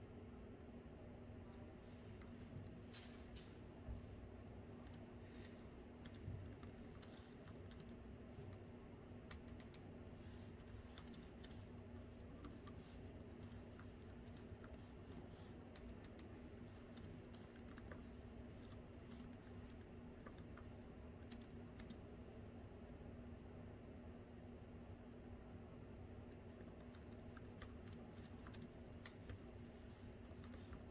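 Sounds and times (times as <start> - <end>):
steady low hum: 0.0 - 30.9
laptop keyboard typing: 4.8 - 8.6, 9.2 - 22.0, 26.4 - 30.9.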